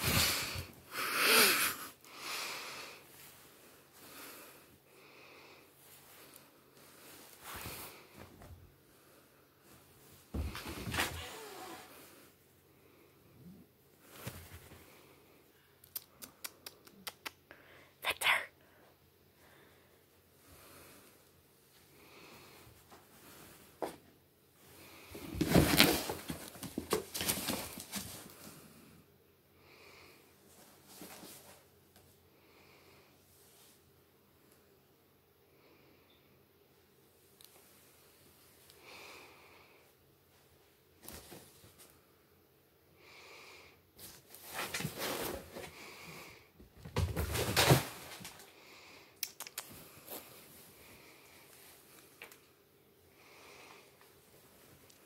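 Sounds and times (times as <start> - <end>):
cat rustling and scuffling: 5.8 - 8.8, 9.6 - 12.4, 13.9 - 15.1, 22.7 - 28.8, 30.4 - 32.2, 40.3 - 42.1, 44.0 - 46.0, 46.7 - 48.6
cardboard rustling and scraping: 25.2 - 28.3, 44.3 - 45.7.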